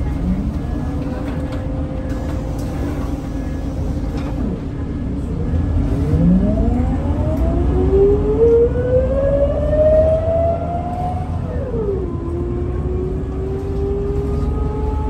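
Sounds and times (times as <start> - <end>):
bus diesel engine rumble: 0.0 - 15.0
drivetrain whine rising in pitch: 6.1 - 15.0.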